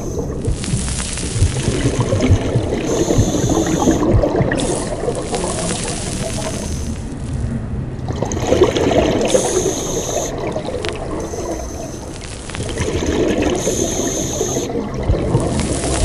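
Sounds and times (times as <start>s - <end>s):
regulator breathing hiss: 0.0s - 1.4s, 2.8s - 7.3s, 9.2s - 10.4s, 11.3s - 12.6s, 13.5s - 14.7s, 15.5s - 16.0s
exhaled air bubbling: 0.0s - 16.0s.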